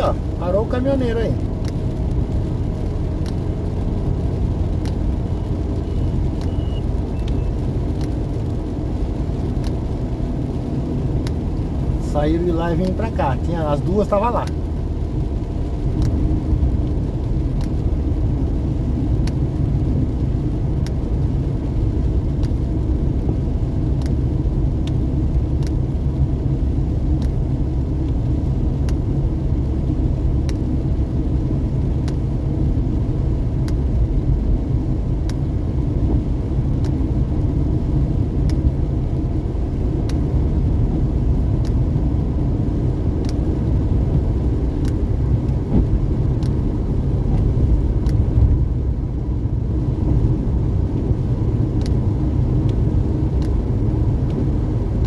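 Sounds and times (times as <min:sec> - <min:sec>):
engine and tyre rumble in cab: 0:00.0 - 0:55.0
faint clicks: 0:06.4 - 0:08.4, 0:30.4 - 0:30.7, 0:41.6 - 0:41.8, 0:43.2 - 0:43.6, 0:44.8 - 0:45.6.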